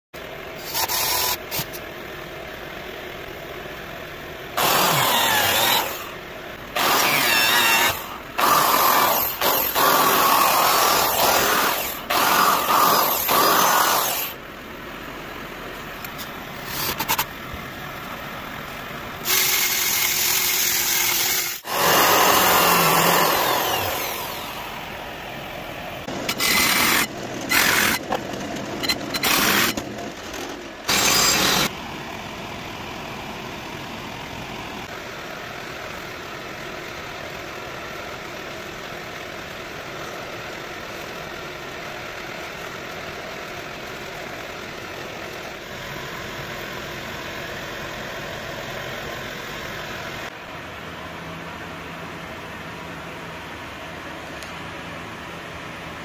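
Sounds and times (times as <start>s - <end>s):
steady background hum: 0.2s - 56.0s
power tool running: 4.5s - 14.4s, 19.2s - 25.2s, 26.0s - 28.2s, 28.8s - 29.8s, 30.8s - 31.8s.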